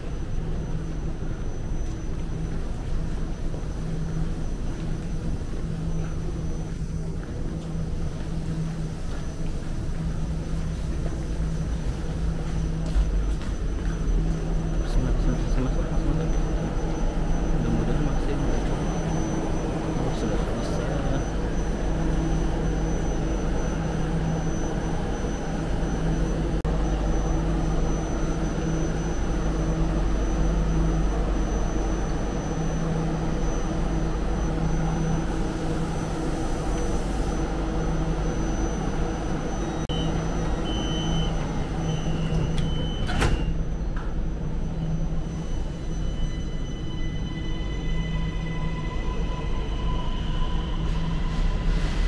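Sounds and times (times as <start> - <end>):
train hum: 0.0 - 52.0
short warning beeps: 12.8 - 35.3, 36.7 - 48.3
train doors sliding shut: 40.4 - 44.2.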